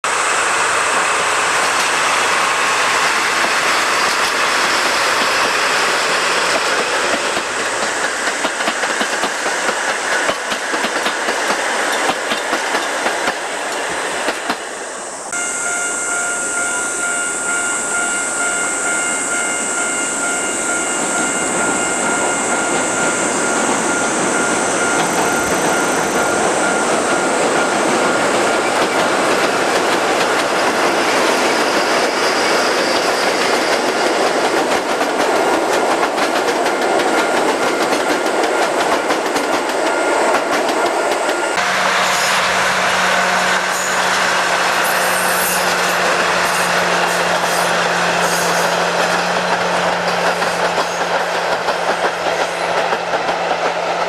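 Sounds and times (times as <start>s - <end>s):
train rumbling on rails: 0.0s - 54.0s
high-pitched tone: 15.3s - 28.6s.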